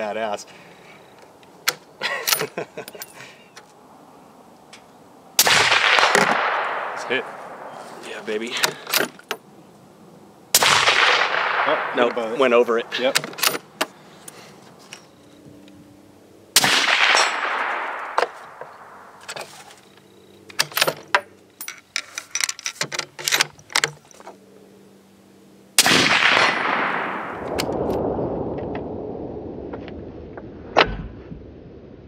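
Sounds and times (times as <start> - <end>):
suppressed rifle shots: 5.4 - 7.8, 10.5 - 12.6, 16.6 - 19.2, 25.8 - 28.0.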